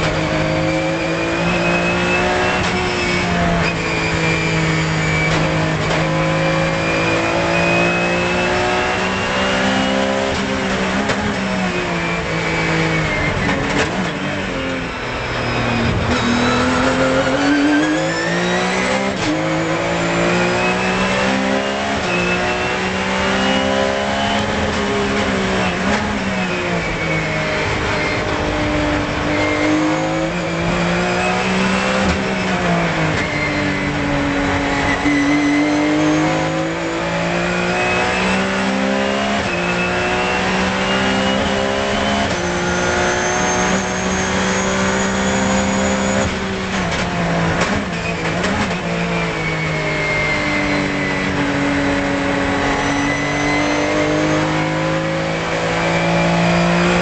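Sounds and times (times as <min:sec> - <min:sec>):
racing car engine: 0:00.0 - 0:57.0.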